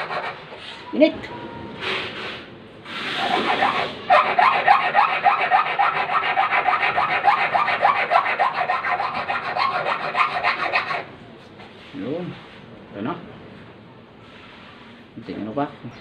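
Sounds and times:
file rasping on metal: 0:00.0 - 0:00.5, 0:03.0 - 0:11.0.

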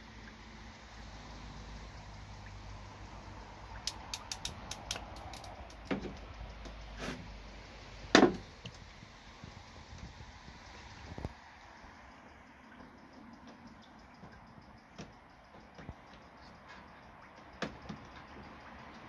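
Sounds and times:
low steady rumble: 0:00.0 - 0:17.4
clicks and knocks of wires: 0:03.8 - 0:06.8.

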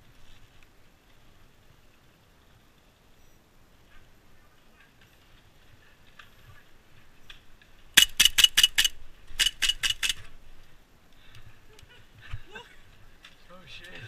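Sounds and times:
airsoft pistol shots: 0:08.0 - 0:10.2.

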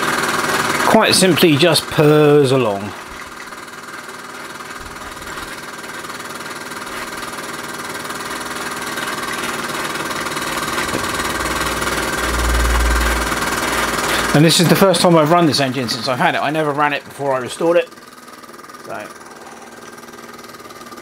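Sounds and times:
model steam engine purring: 0:00.0 - 0:21.0
low rumble: 0:10.9 - 0:14.2.

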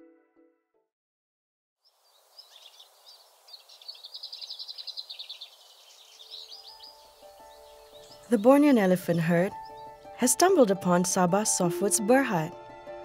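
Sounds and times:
bird chirps and trills: 0:01.9 - 0:10.7.

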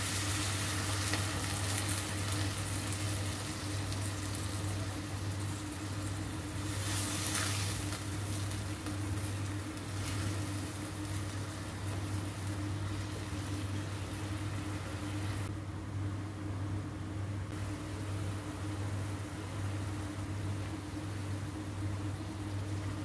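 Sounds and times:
pork sizzling in a wok: 0:00.0 - 0:15.5
steady low hum: 0:00.0 - 0:23.0
spatula stirring in wok: 0:06.4 - 0:14.3.

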